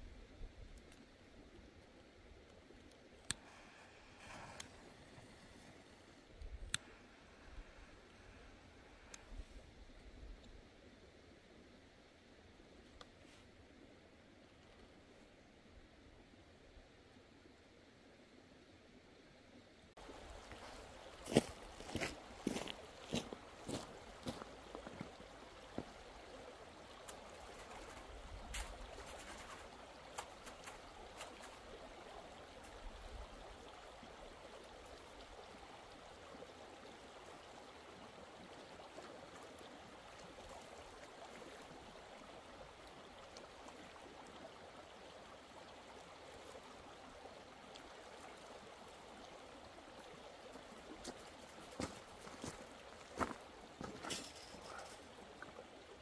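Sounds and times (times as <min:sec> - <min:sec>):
river flowing over stones: 0:00.3 - 0:10.0, 0:20.0 - 0:56.0
footsteps on gravel: 0:20.6 - 0:25.1, 0:51.8 - 0:54.5.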